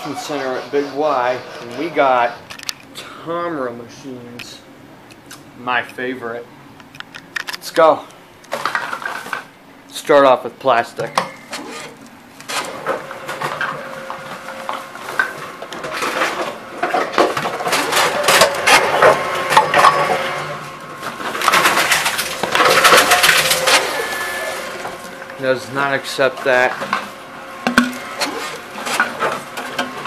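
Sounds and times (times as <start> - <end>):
plastic bottles crinkling and clattering: 8.4 - 9.5, 10.9 - 30.0
machine conveyor whirring: 11.0 - 30.0.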